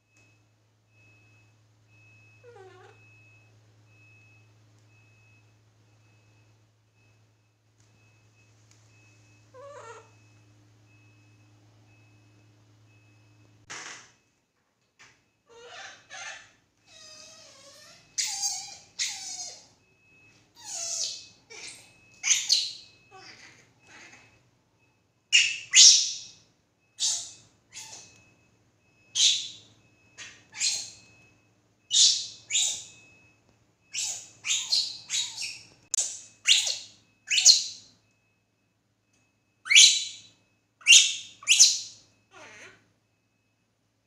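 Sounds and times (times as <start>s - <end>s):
baby monkey squealing cries: 15.5s - 19.7s, 20.6s - 24.2s, 25.4s - 26.2s, 27.0s - 28.1s, 30.5s - 31.0s, 31.9s - 32.9s, 33.9s - 37.7s.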